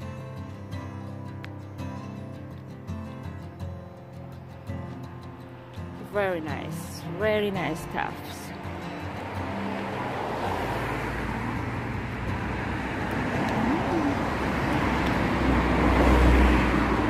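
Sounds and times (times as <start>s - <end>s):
vehicle passing on road: 4.9s - 17.0s.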